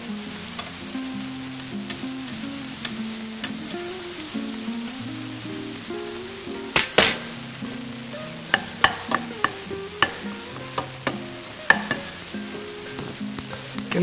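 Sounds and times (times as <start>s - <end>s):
meat sizzling: 0.0s - 14.0s
wooden spoon clacking on pot: 8.5s - 12.2s.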